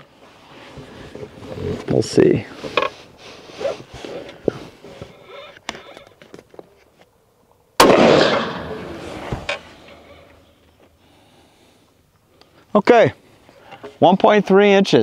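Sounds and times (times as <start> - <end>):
rifle shot: 7.8 - 9.6.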